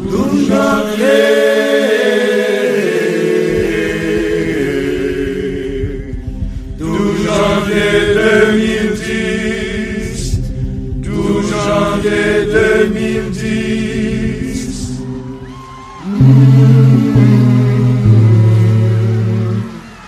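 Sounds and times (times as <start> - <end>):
voices singing a chant: 0.0 - 20.0.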